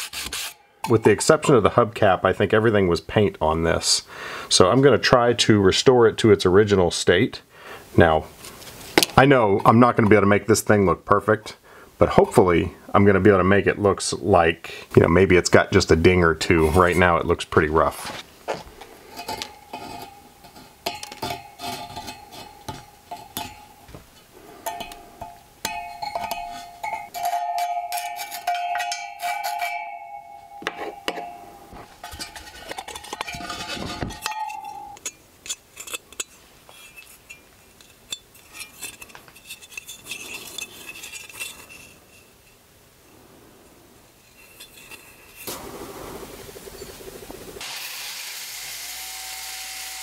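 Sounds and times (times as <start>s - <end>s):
metal wheel clinking: 19.1s - 42.6s, 44.2s - 45.6s.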